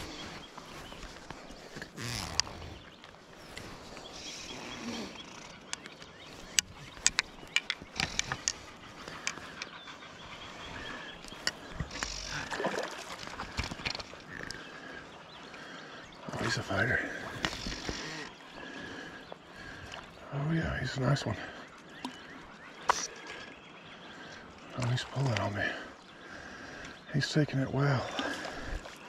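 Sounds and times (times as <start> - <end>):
water: 0.0 - 29.0
fishing gear clicking: 5.3 - 9.7, 11.1 - 12.5.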